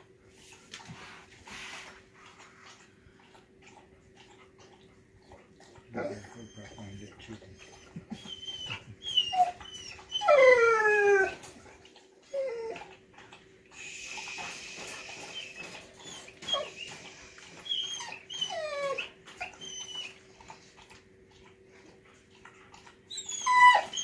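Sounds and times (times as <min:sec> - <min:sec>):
faint constant hum: 0:00.0 - 0:24.0
dog whining: 0:05.9 - 0:13.0, 0:14.2 - 0:20.3, 0:23.1 - 0:24.0.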